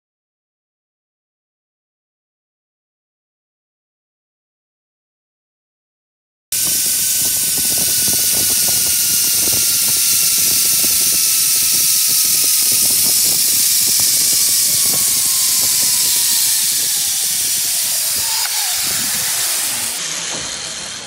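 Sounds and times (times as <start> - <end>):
zipline pulleys whining on cable: 6.5 - 21.0
wind buffeting microphone: 6.6 - 20.5.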